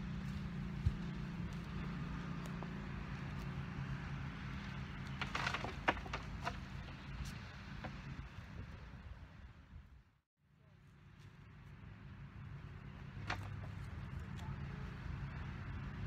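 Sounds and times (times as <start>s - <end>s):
low engine hum: 0.0s - 10.0s, 10.6s - 16.0s
dirt and stones hitting wooden casket: 5.0s - 7.2s.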